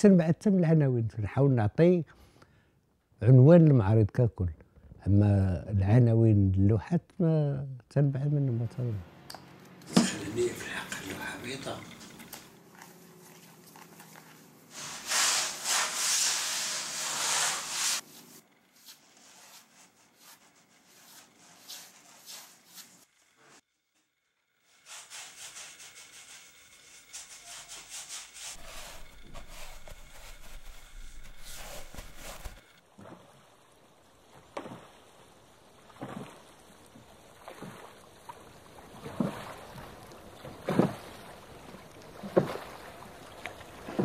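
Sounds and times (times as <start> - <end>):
paintbrush strokes on canvas: 12.7 - 23.6, 24.6 - 32.8
rubbing and scraping: 13.2 - 23.6, 24.7 - 32.8.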